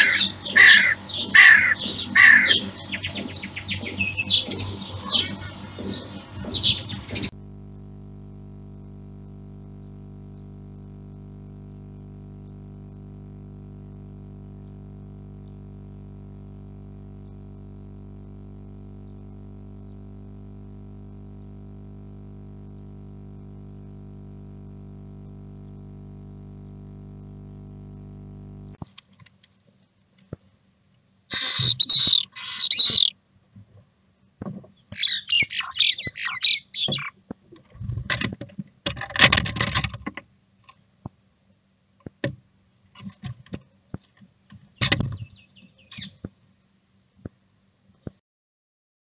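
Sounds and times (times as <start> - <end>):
steady hum: 0.0 - 28.8, 31.3 - 33.1
scratchy clicks: 31.3 - 33.1.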